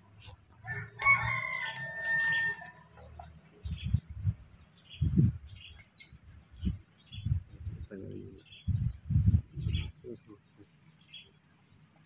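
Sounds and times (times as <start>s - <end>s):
small birds chirping: 0.0s - 12.0s
rooster crowing: 0.6s - 3.3s
dull low thumps: 3.6s - 5.7s, 6.5s - 10.2s.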